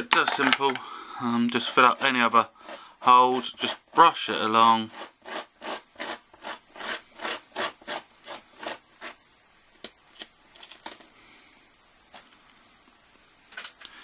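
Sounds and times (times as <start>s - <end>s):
grit brushed along track: 1.2s - 9.2s.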